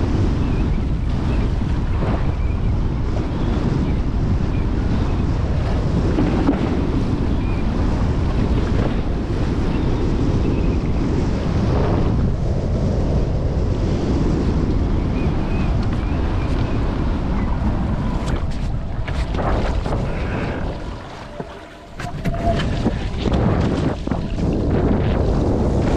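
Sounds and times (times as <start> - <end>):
wind buffeting microphone: 0.0 - 25.9
rushing water: 14.6 - 25.9.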